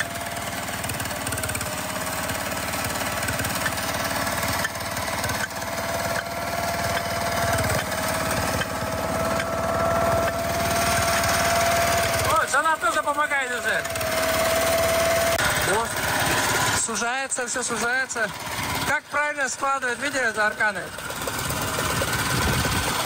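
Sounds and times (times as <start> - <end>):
small winch engine running: 0.0 - 23.0.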